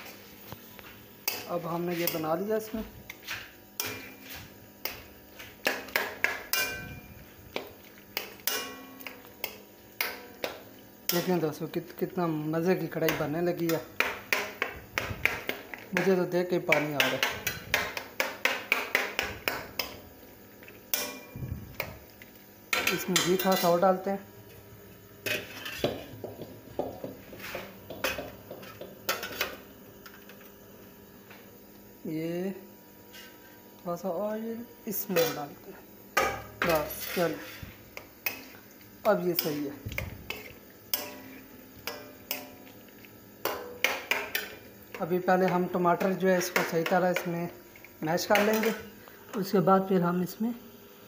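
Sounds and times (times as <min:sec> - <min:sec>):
metal spoon scraping a pan: 0:01.2 - 0:07.3, 0:08.2 - 0:10.5, 0:22.7 - 0:23.9, 0:25.2 - 0:26.2, 0:27.2 - 0:29.6, 0:33.1 - 0:33.4, 0:35.0 - 0:35.6, 0:36.2 - 0:42.7, 0:43.4 - 0:47.3, 0:48.2 - 0:49.5
metal spoon clinking on steel pan: 0:05.6 - 0:06.9, 0:08.2 - 0:10.2, 0:40.3 - 0:42.6, 0:43.4 - 0:47.4, 0:48.2 - 0:48.8.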